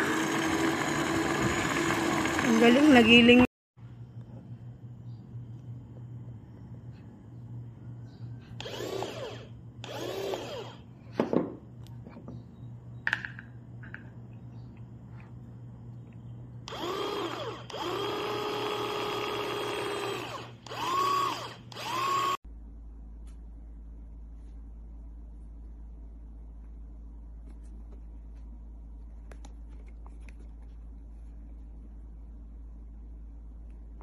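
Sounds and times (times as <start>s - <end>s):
food chopper motor whirring: 0.0s - 3.5s, 8.6s - 10.8s, 16.7s - 22.4s.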